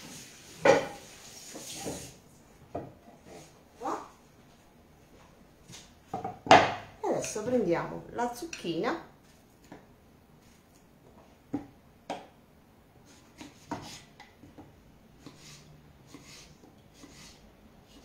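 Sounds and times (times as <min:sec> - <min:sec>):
knife cutting vegetable: 0:15.2 - 0:18.0.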